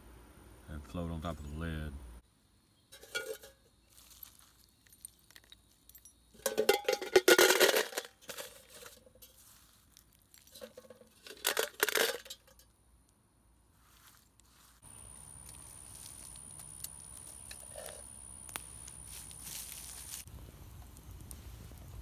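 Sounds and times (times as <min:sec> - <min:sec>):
bullets clinking in metal can: 0:05.9 - 0:09.4, 0:10.5 - 0:12.7.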